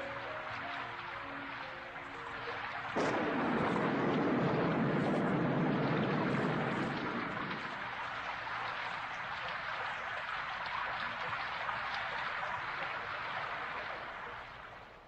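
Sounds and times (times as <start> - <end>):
steady falling rain: 0.0 - 15.0.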